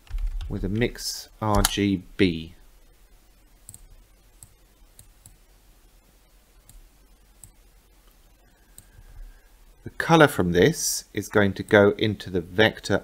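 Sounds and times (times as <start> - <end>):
computer mouse clicks: 3.6 - 5.4, 6.6 - 9.0.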